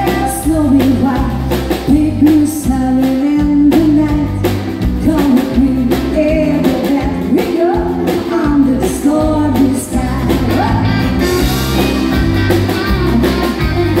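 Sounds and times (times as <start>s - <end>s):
woman singing into a microphone: 0.0s - 11.0s
steady bass line: 0.0s - 14.0s.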